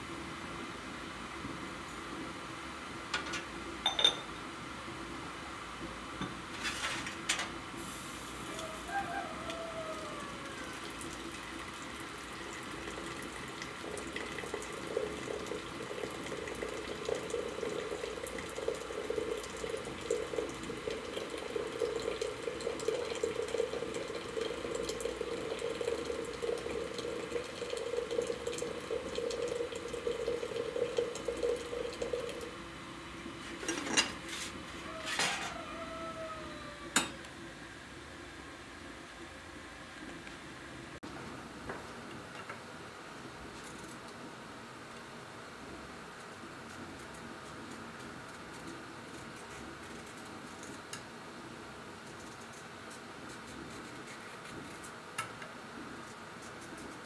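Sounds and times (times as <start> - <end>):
china clinking: 3.8 - 4.3
hot water pouring into teapot: 7.8 - 33.8.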